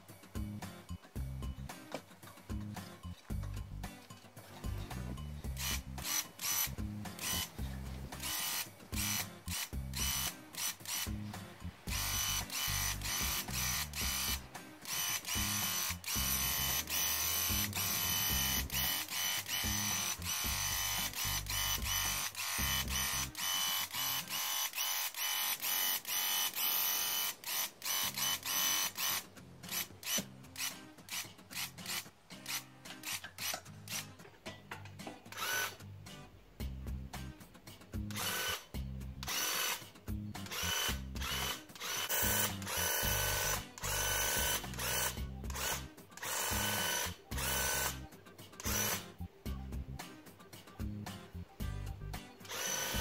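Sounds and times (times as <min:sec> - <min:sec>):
background music: 0:00.0 - 0:53.0
paint sprayer motor and pump: 0:05.6 - 0:11.2, 0:11.9 - 0:34.0, 0:35.3 - 0:35.8, 0:38.1 - 0:38.6, 0:39.2 - 0:39.8, 0:40.5 - 0:48.0, 0:48.6 - 0:49.0, 0:52.4 - 0:53.0.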